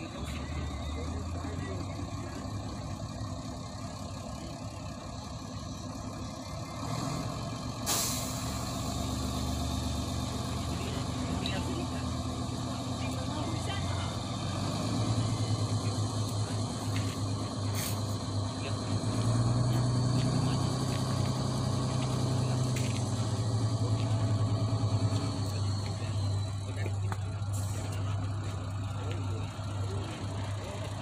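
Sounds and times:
diesel truck engine running: 0:00.0 - 0:31.0.

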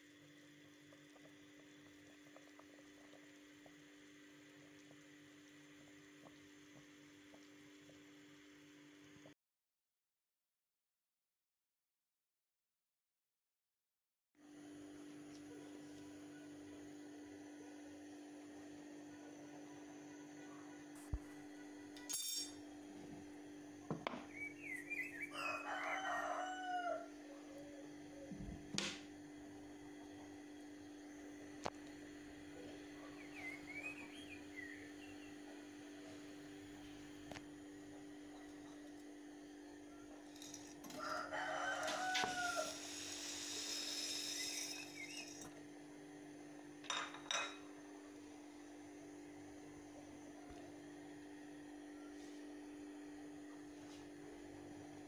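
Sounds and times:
rooster crowing: 0:24.3 - 0:27.9, 0:40.5 - 0:43.6
steady low hum: 0:27.0 - 0:55.0
spaghetti hissing in hot water: 0:41.9 - 0:45.4.

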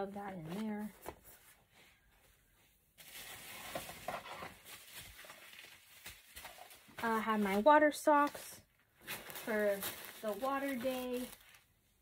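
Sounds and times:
faint rustling of clothes: 0:00.0 - 0:12.0
soft taps and scuffs: 0:00.2 - 0:02.8.

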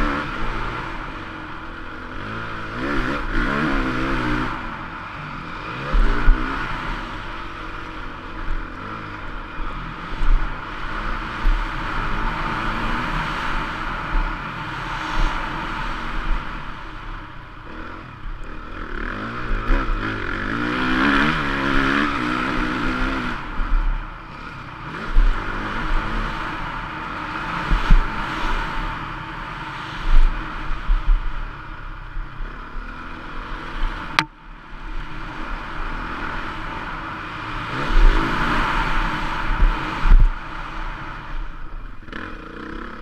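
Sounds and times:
motorcycle engine revving: 0:00.0 - 0:43.0
wind rush: 0:10.2 - 0:18.4.

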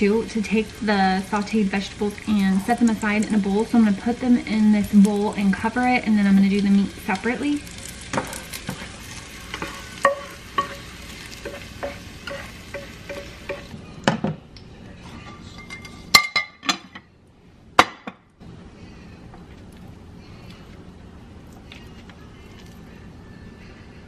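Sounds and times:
vegetables sizzling in a frying pan: 0:00.0 - 0:13.8.

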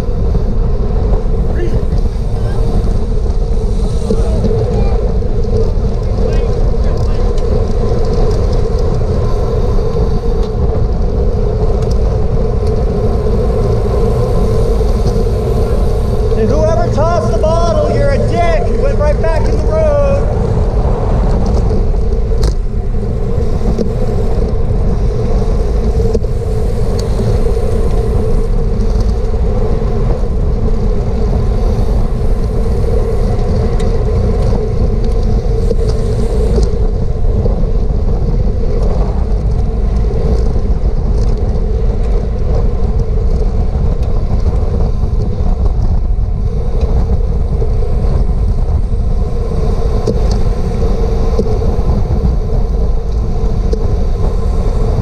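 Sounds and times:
steady hum: 0:00.0 - 0:41.0
wind rushing over microphone: 0:00.0 - 0:55.0.

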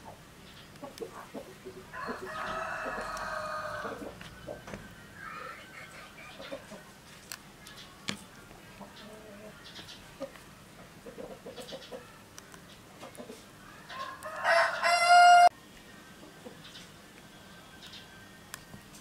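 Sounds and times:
rooster crowing: 0:01.8 - 0:06.8, 0:13.8 - 0:15.5
clicks and rustles of skewering: 0:06.4 - 0:09.0.

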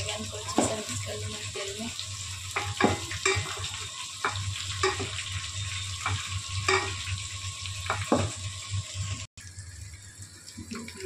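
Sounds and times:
vegetables sizzling in oil: 0:00.0 - 0:11.0
wooden spoon knocking a pot: 0:02.6 - 0:05.2, 0:06.0 - 0:07.0, 0:07.9 - 0:08.4.

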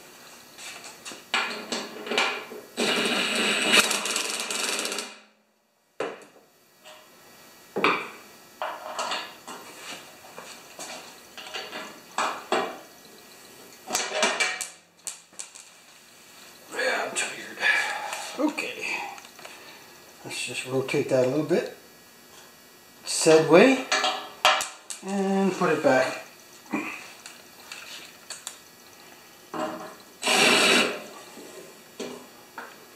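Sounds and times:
cordless drill driving bolts: 0:30.2 - 0:31.0.

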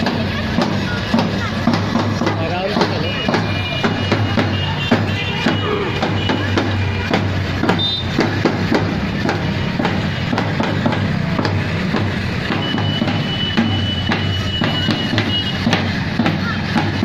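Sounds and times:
side drums marching rhythm: 0:00.0 - 0:17.0.

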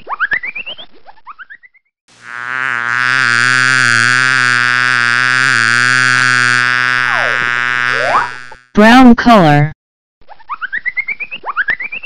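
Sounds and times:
cartoon bee buzzing: 0:02.1 - 0:08.7.

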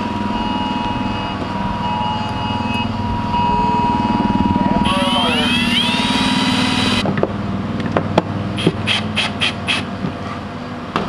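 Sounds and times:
cordless drill running: 0:04.8 - 0:07.0.

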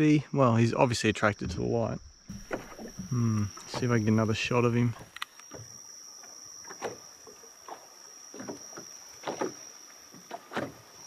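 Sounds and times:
waves slapping boat hull: 0:01.4 - 0:11.0
faint high-pitched tone: 0:03.1 - 0:10.1.

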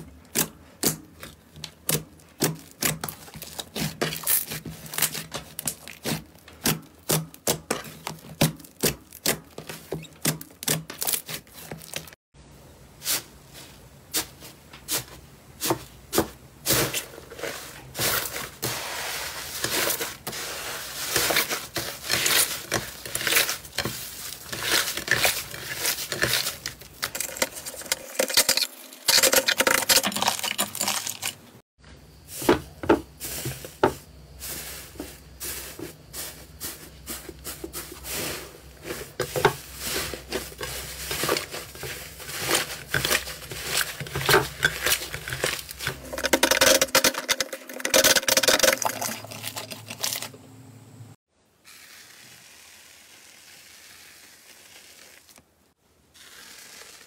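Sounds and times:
slime crackling and squishing: 0:00.3 - 0:12.2, 0:18.0 - 0:27.8, 0:51.8 - 0:55.4.

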